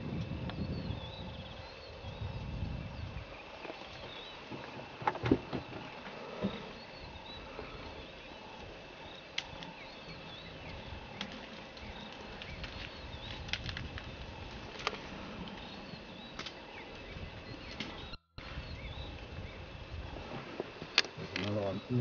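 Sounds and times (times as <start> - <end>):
high insect drone: 0.0 - 22.0
birds chirping faintly: 0.3 - 22.0
sharp snaps and knocks: 11.2 - 15.1.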